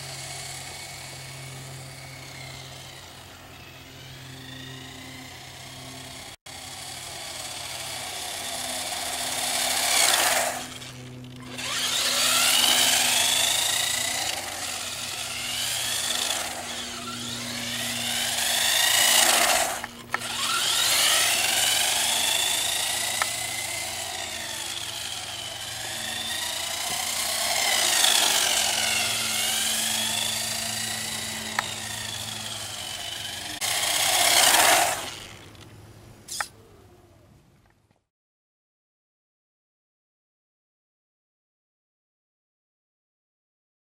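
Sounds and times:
rc car electric motor whining: 0.0s - 35.6s, 36.3s - 36.6s.

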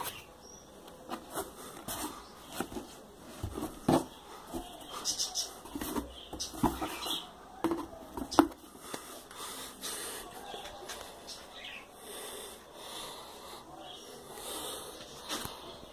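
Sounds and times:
cardboard rustling: 0.9s - 8.6s
cardboard box knocks and scrapes: 1.1s - 4.9s, 5.7s - 8.6s.

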